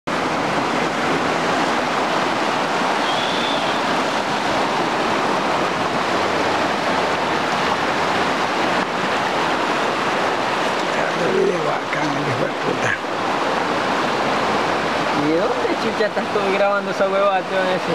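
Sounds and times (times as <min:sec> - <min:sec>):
river rushing and churning: 0:00.1 - 0:17.9
brief high whistle: 0:03.0 - 0:03.9.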